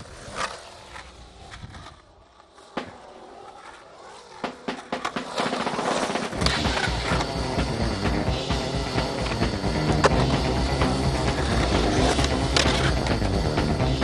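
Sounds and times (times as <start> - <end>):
skateboard clacks: 0.0 - 13.6
skateboard wheels rolling on concrete: 0.0 - 14.0
music with heavy bass beat: 6.4 - 14.0.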